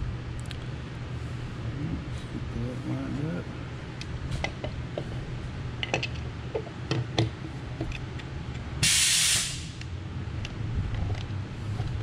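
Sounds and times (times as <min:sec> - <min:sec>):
small clicks and taps of parts: 0:05.8 - 0:08.7, 0:09.8 - 0:12.0
pressurised spray hiss: 0:08.8 - 0:09.8.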